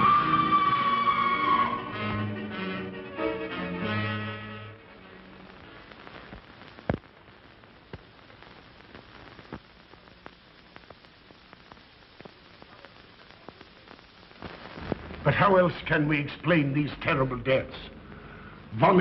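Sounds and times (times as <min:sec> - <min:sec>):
orchestral music: 0:00.0 - 0:04.8
film soundtrack hiss and crackle: 0:00.0 - 0:19.0
scattered pops: 0:05.5 - 0:16.5.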